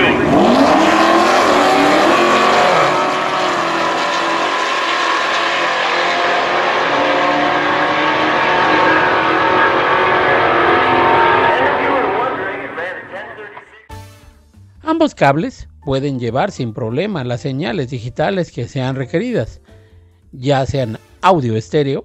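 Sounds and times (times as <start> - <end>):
race car engines accelerating: 0.0 - 13.6.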